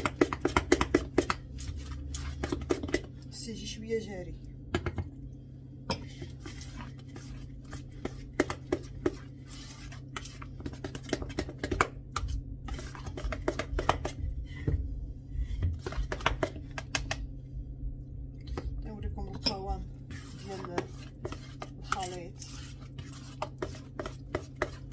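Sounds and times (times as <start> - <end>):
utensil scraping metal bowl: 6.0 - 14.2, 19.2 - 24.9.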